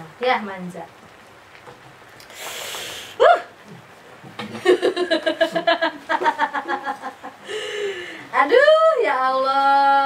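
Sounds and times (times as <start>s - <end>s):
woman laughing: 4.6s - 8.0s.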